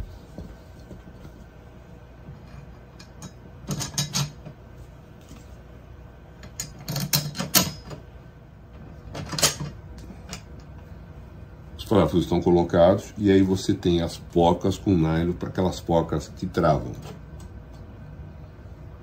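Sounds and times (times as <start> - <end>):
screws and metal parts clattering: 6.4 - 8.0.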